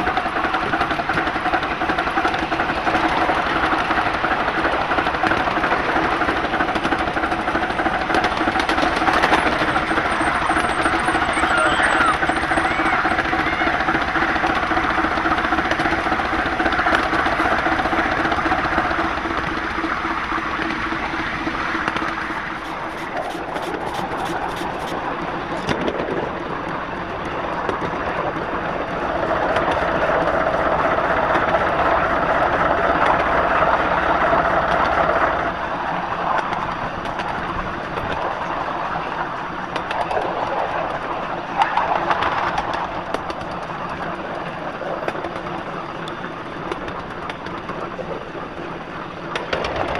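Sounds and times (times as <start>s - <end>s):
steam locomotive running: 0.0s - 49.9s
rapid clicks: 21.8s - 26.0s.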